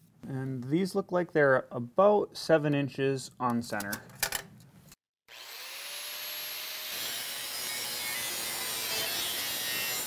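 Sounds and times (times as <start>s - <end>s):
angle grinder cutting steel: 5.3s - 10.0s.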